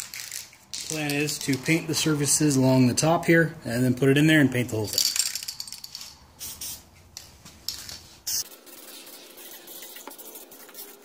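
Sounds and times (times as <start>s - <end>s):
spray can hissing: 6.0s - 6.9s, 7.7s - 11.0s.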